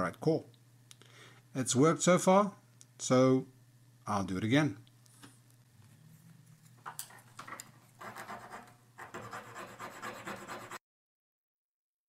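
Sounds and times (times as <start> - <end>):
file rasping on wooden stick: 8.0 - 10.8.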